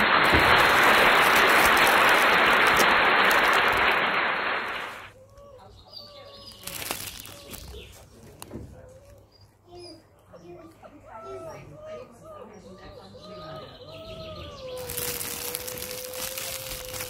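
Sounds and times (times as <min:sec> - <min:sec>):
loud steady hiss: 0:00.0 - 0:05.1.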